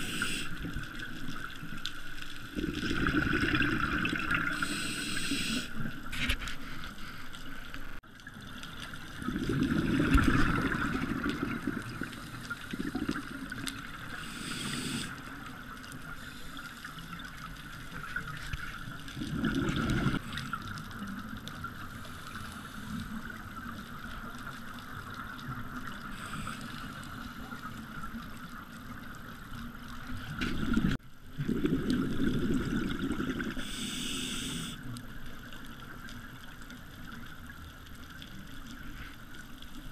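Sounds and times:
diver inhaling on regulator: 0:00.0 - 0:00.6, 0:04.5 - 0:05.8, 0:14.2 - 0:15.2, 0:26.1 - 0:27.0, 0:33.6 - 0:34.8
exhaled bubbles rushing: 0:02.5 - 0:04.7, 0:09.1 - 0:13.9, 0:19.0 - 0:20.6, 0:30.4 - 0:33.6.

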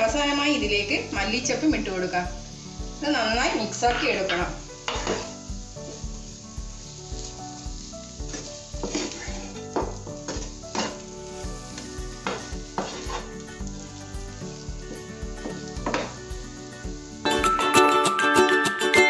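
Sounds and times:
light sizzling: 0:00.0 - 0:19.0
wooden spatula scraping a pan: 0:03.0 - 0:06.2, 0:06.9 - 0:16.4.

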